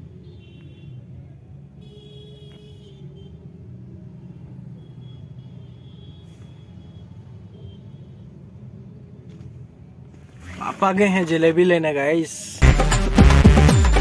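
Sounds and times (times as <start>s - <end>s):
street traffic rumble: 0.0s - 12.6s
motorbikes passing: 7.3s - 12.6s.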